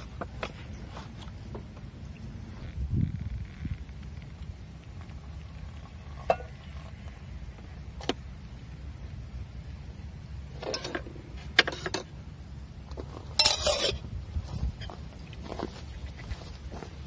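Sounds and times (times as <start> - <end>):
metal pot lid clattering: 13.4 - 14.0.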